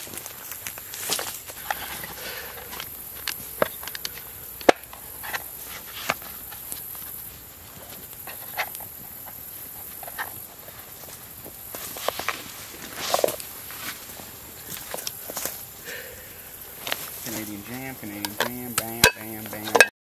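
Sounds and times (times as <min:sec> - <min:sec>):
steady high-pitched hiss: 0:00.0 - 0:19.9
clicks and knocks of case handled: 0:18.0 - 0:19.9.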